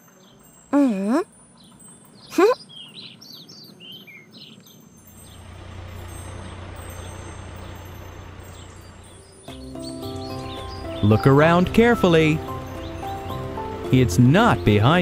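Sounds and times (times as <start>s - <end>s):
birds chirping: 0.0s - 15.0s
cartoon truck engine humming: 4.8s - 15.0s.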